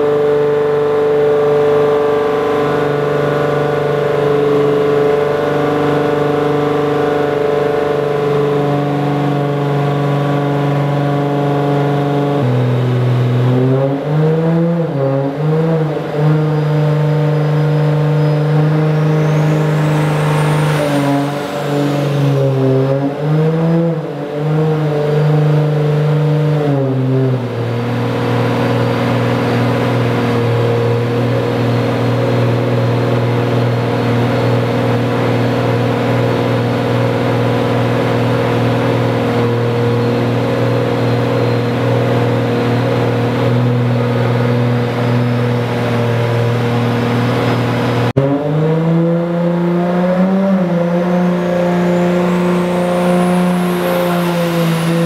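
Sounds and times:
car engine revving and idling: 0.0 - 55.0
faint high whine: 17.3 - 23.0.

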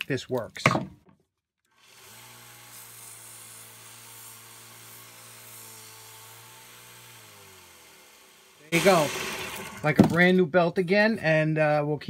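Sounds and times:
belt sander humming: 1.8 - 10.0.

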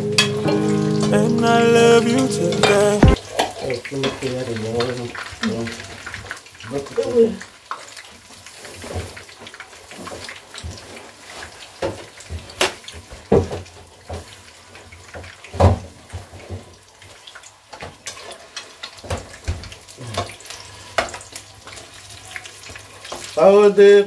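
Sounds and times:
utensils and bowls clinking: 0.0 - 4.3
fritters frying in hot oil: 3.1 - 24.0.

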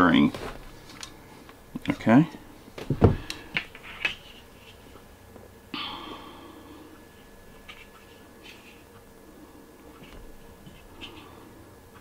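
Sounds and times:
blind cord rustling: 0.0 - 2.1.

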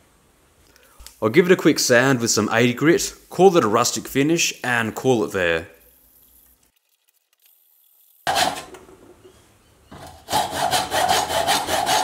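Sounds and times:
sandpaper rasping on wood: 10.3 - 12.0.

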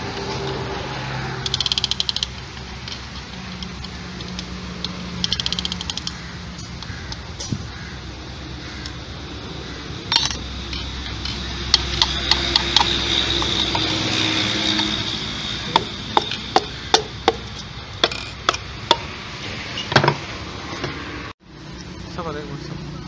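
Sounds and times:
hammer handle tapping piston: 15.7 - 19.0.

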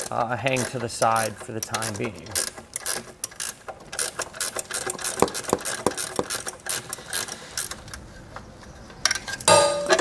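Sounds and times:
ratchet wrench clicking: 0.0 - 7.8.

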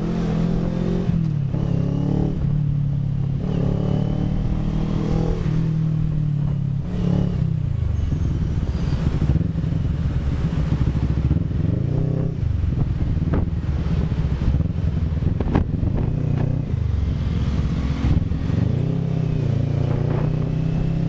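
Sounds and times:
motorcycle engine running: 5.8 - 21.0.

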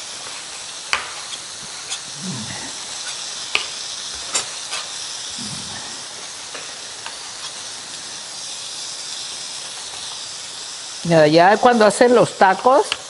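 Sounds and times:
steaks sizzling on a griddle: 0.0 - 13.0.

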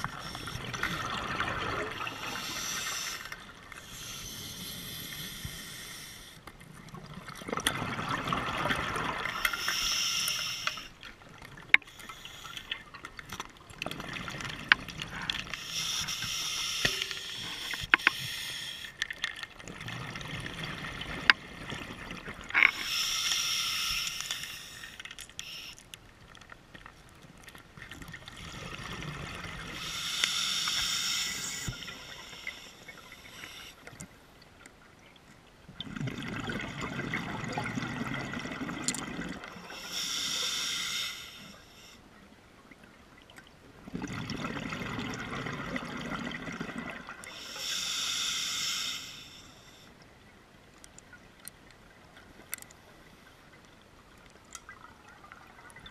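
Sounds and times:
exhaled bubbles rushing: 43.9 - 47.2.

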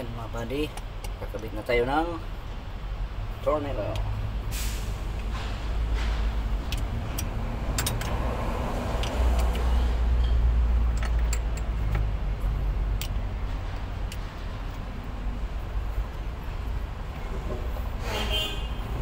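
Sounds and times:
socket wrench metal clicks: 6.7 - 8.2.

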